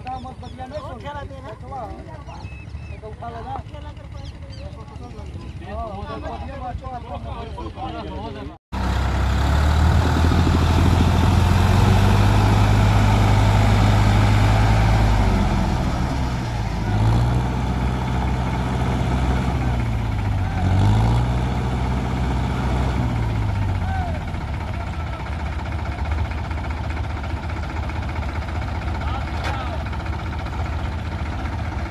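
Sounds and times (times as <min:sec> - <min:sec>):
tractor diesel engine revving: 0:08.8 - 0:31.9.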